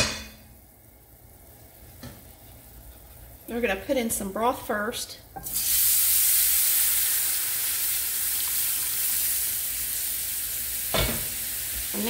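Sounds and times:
broth sizzling in a skillet: 0:05.4 - 0:12.0.

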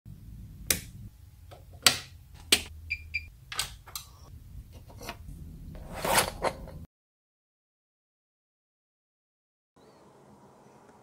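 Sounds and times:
light switch flipping: 0:00.7 - 0:02.7.

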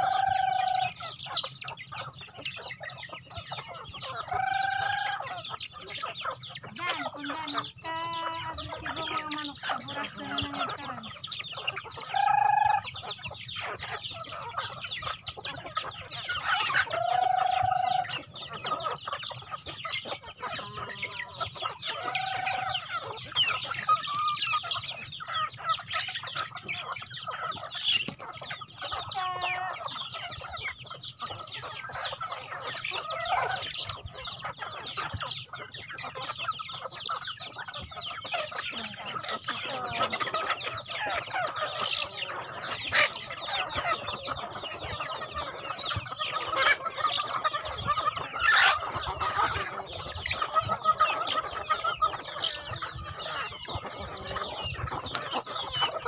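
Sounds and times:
drawn-out rooster calls: 0:00.0 - 0:01.2, 0:16.3 - 0:18.8, 0:20.4 - 0:23.1
chickens clucking: 0:00.0 - 0:56.0.

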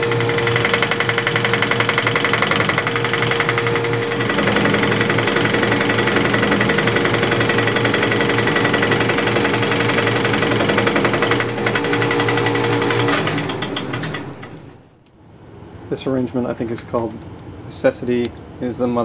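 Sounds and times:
lathe cutter hammering on metal: 0:00.0 - 0:14.7
motor and gears whining: 0:00.0 - 0:14.8.

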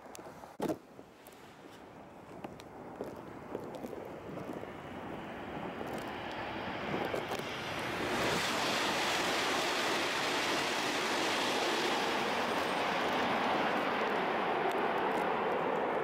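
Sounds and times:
high-speed train rushing past: 0:06.4 - 0:15.6.

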